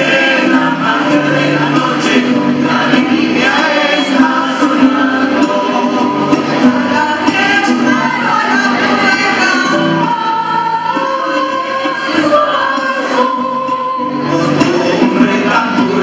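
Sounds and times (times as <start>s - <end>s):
mixed choir singing: 0.0s - 16.0s
strummed guitar: 0.0s - 16.0s.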